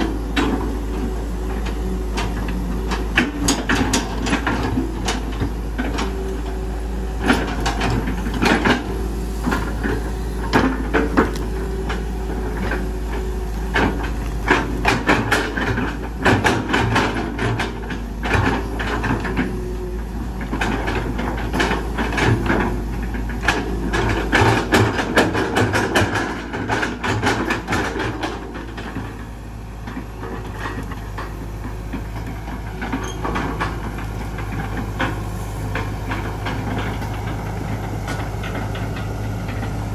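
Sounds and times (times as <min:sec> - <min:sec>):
excavator bucket clanking: 0:00.0 - 0:39.9
excavator diesel engine running: 0:00.0 - 0:39.9.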